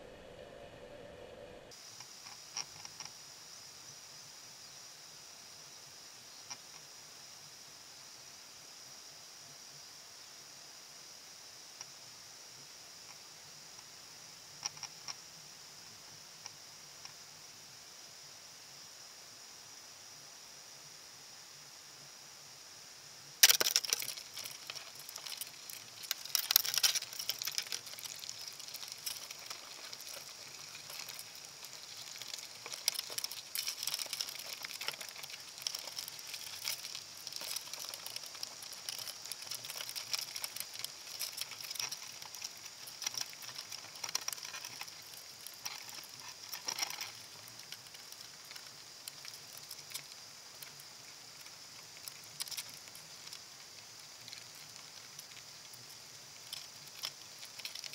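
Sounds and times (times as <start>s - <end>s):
crab scraping on wire mesh underwater: 23.4s - 48.6s.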